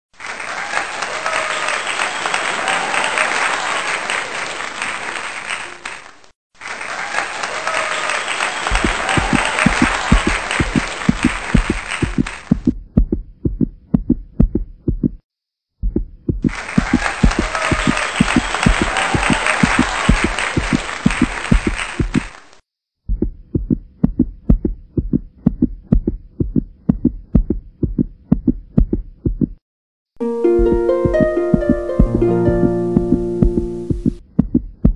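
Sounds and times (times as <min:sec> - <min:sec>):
applause and cheering: 0:00.1 - 0:12.7, 0:16.4 - 0:22.6
deep heartbeat-like thumping: 0:08.7 - 0:15.2, 0:15.8 - 0:22.2, 0:23.0 - 0:29.6, 0:30.6 - 0:34.9.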